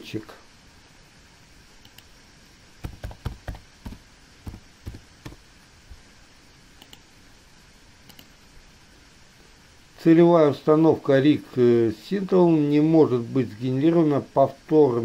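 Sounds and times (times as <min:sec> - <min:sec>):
computer mouse clicks: 0:01.8 - 0:02.1, 0:06.8 - 0:07.1, 0:08.0 - 0:08.3
keyboard typing: 0:02.8 - 0:05.4.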